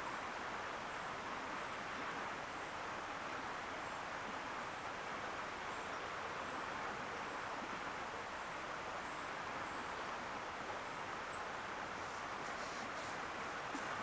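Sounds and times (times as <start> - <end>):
flowing river water: 0.0 - 14.0.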